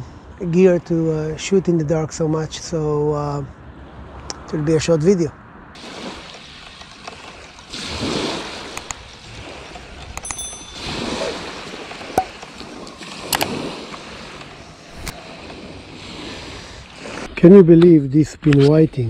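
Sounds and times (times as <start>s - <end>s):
small waves breaking on beach: 5.8s - 17.4s.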